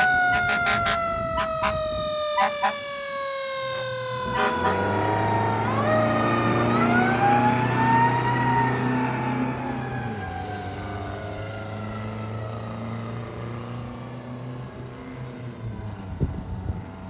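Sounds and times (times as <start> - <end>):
short sharp siren blasts: 0.0 - 10.4
fire engine siren wailing: 0.0 - 17.0
truck engine hum: 0.0 - 17.0.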